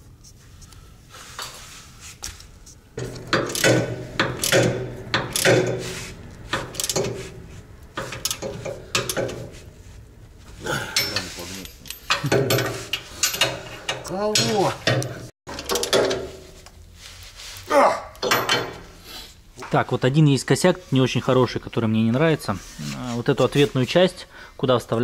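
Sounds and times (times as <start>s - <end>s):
ratchet wrench clicking: 3.0s - 7.3s, 7.9s - 9.5s
metal clinks: 3.0s - 15.2s.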